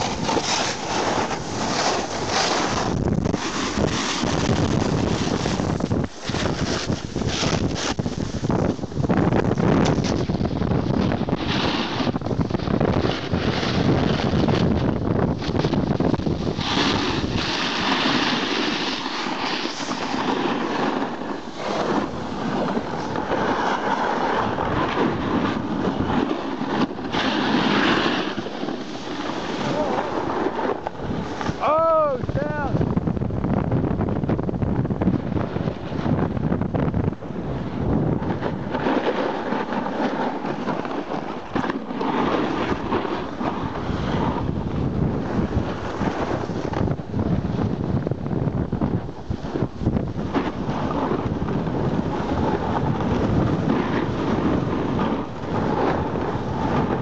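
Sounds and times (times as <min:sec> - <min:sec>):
snowboard scraping on snow: 0:00.0 - 0:57.0
wind noise on microphone: 0:00.0 - 0:57.0.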